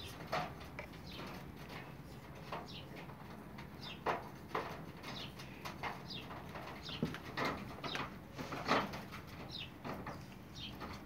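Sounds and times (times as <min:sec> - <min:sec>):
birds chirping: 0:00.0 - 0:08.5, 0:09.2 - 0:11.0.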